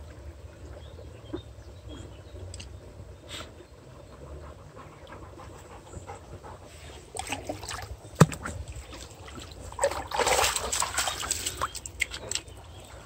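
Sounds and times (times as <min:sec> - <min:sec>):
dog splashing in a brook: 0:07.0 - 0:13.0.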